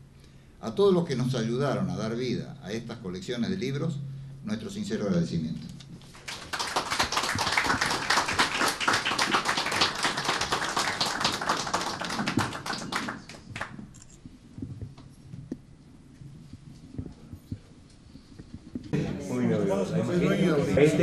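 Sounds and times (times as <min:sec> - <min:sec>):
faint room noise: 0:00.0 - 0:21.0
audience applauding: 0:06.1 - 0:13.9.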